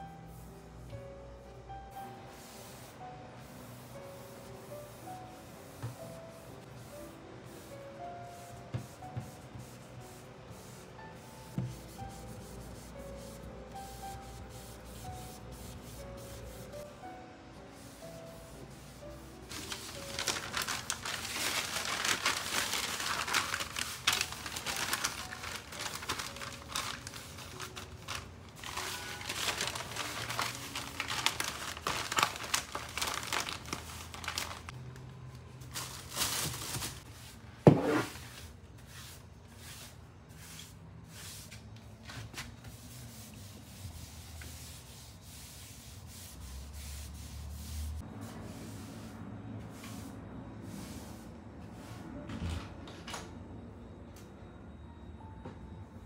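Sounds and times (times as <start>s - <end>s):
newspaper crinkling rustle: 19.5s - 34.8s, 35.6s - 37.1s.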